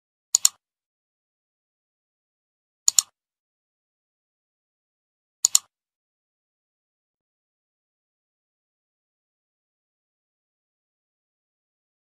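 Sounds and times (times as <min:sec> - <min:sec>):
mouse double clicks: 0:00.3 - 0:00.6, 0:02.9 - 0:03.2, 0:05.4 - 0:05.7.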